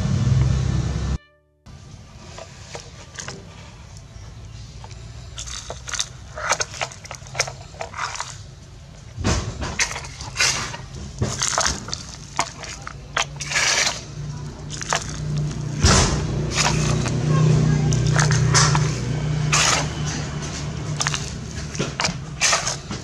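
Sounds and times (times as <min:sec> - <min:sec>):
toy bucket scraping sand: 0:02.2 - 0:03.8, 0:05.3 - 0:08.5, 0:09.8 - 0:15.8, 0:16.4 - 0:23.0
pouring grit: 0:09.8 - 0:23.0.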